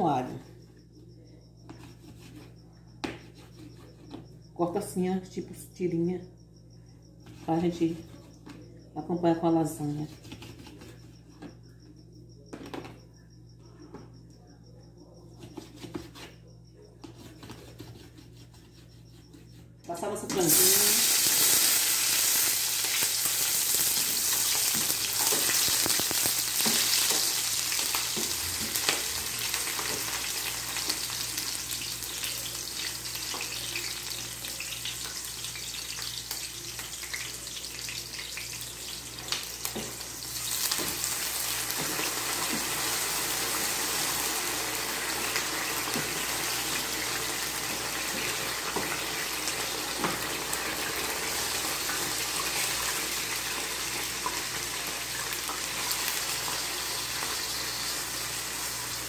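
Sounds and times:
onions sizzling in oil: 19.9s - 59.0s
wooden spoon stirring in pan: 23.4s - 31.2s, 38.3s - 53.5s.

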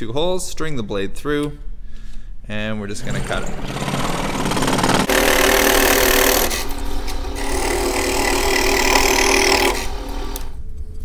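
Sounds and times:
scroll saw cutting wood: 3.0s - 10.6s.

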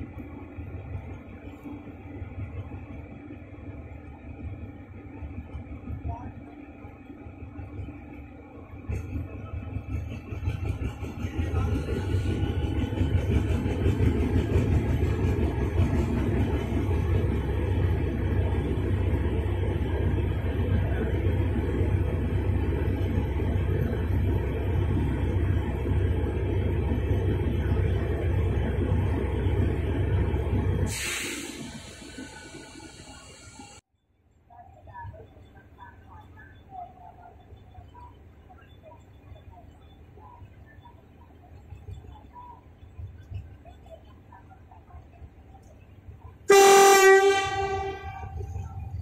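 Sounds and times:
locomotive diesel engine rumbling: 0.0s - 33.8s
brief hiss: 30.9s - 33.8s.

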